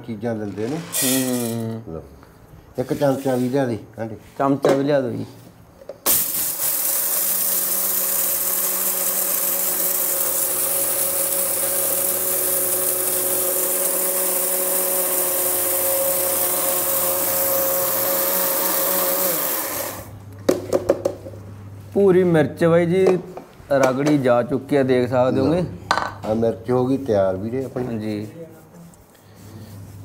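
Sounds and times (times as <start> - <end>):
mixer grinder whining: 0.7 - 1.6, 6.1 - 20.2.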